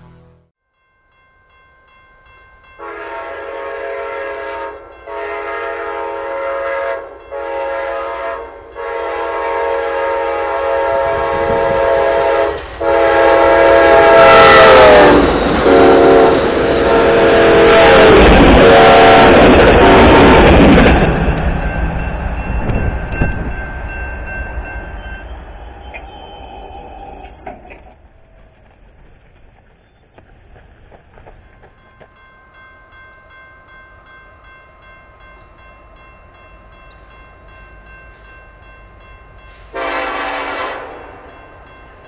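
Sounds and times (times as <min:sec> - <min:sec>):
train rolling along rails: 0:00.8 - 0:42.0
locomotive air horn blasts: 0:02.8 - 0:20.8, 0:39.6 - 0:41.3.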